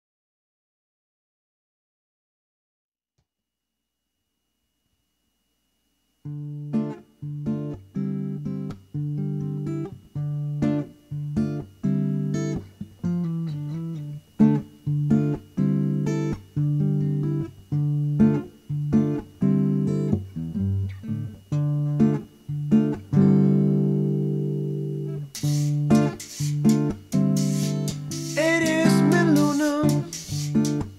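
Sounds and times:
acoustic guitar playing: 6.2 - 30.9.

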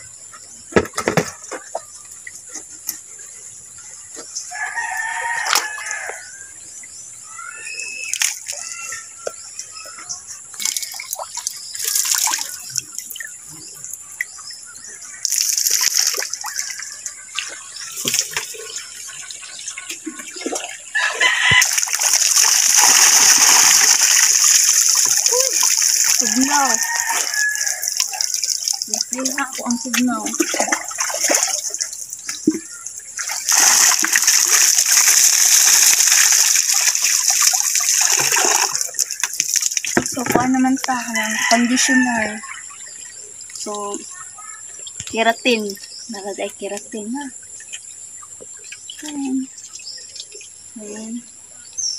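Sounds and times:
rooster crowing: 4.5 - 6.3, 21.0 - 21.9, 26.2 - 28.2, 40.9 - 42.4
water pouring splash: 7.7 - 8.9, 10.6 - 13.4, 15.2 - 40.9.

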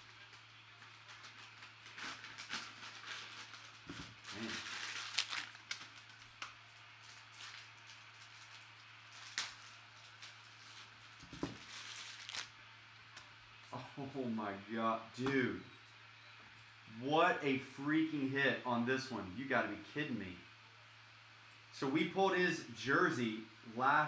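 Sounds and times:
foil wrapper tearing and crinkling: 0.0 - 12.6.

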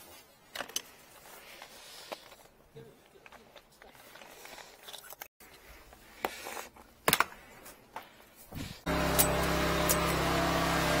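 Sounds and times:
drain jetter engine running: 8.9 - 11.0.

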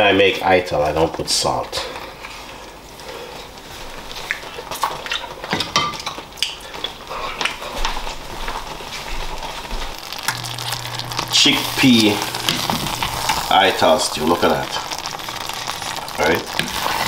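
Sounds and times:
kitchenware clinking: 5.5 - 6.3.

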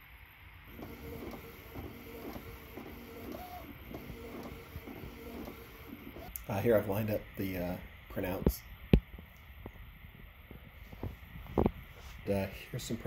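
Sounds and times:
printer mechanical whir: 0.6 - 6.8.

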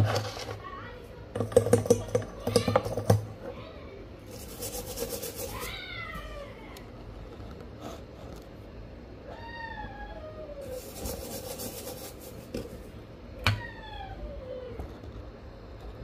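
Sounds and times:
falling meow-like call: 13.4 - 14.8.

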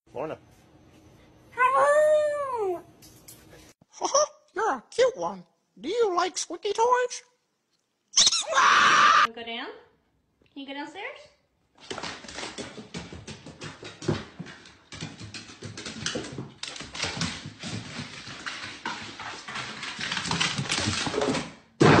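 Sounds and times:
dog claws clattering on wood: 11.8 - 21.5.

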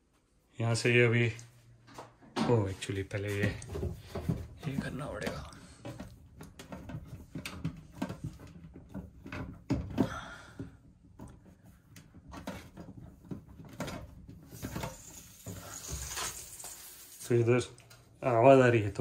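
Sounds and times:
water hissing from hose connection: 14.6 - 17.9.

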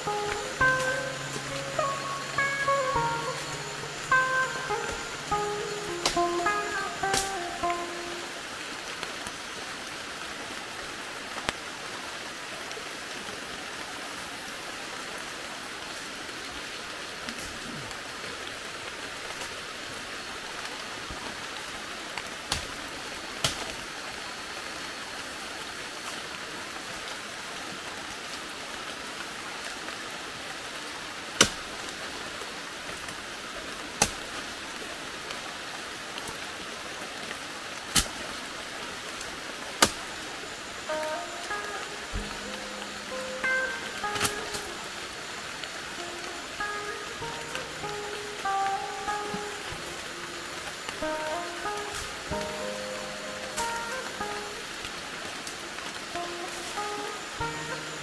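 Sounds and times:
rain pattering: 0.0 - 58.0
machete striking wet log: 31.4 - 31.6, 39.8 - 40.0.

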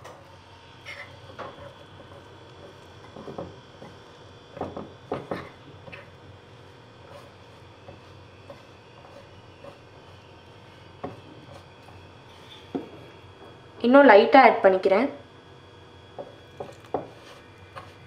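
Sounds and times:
spoon scraping a ceramic bowl: 5.8 - 12.7, 16.6 - 18.0.

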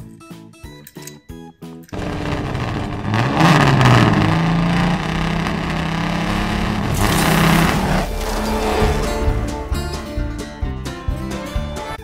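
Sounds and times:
car engine revving: 1.9 - 10.6
loud rush of noise: 2.0 - 9.8.

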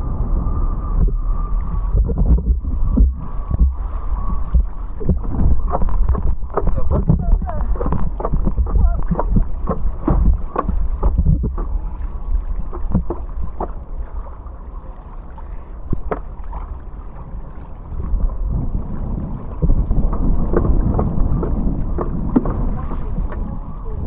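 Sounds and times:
wind rumbling over microphone: 0.0 - 24.0
water splashing and knocking: 1.0 - 13.9, 15.9 - 16.7, 19.4 - 23.6.

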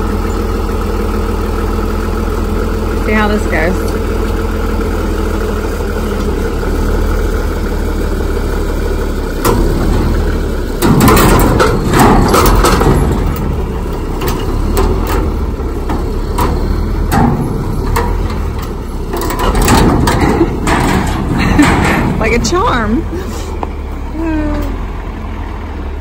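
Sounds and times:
tractor engine running: 0.0 - 26.0
chain and metal clanking: 16.0 - 23.5.

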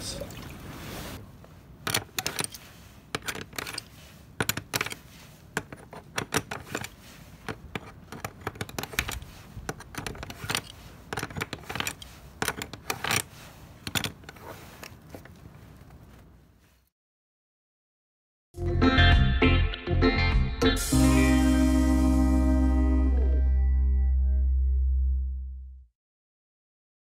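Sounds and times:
metal cap clicking and scraping: 1.8 - 15.0.

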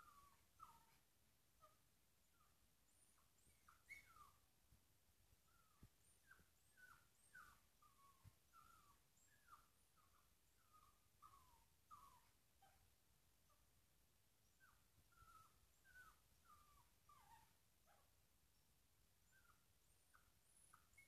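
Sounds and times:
dog whimpering: 0.0 - 1.0, 3.4 - 4.4, 5.5 - 12.8, 14.5 - 18.1.

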